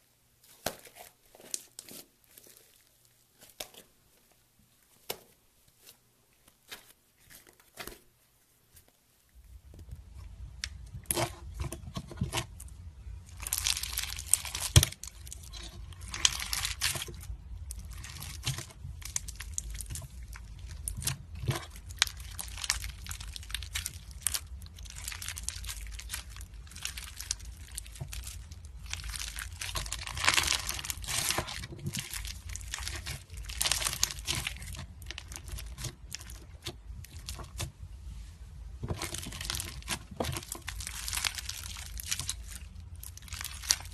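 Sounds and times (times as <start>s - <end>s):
slime crackling and popping: 10.5s - 37.7s, 38.9s - 43.9s.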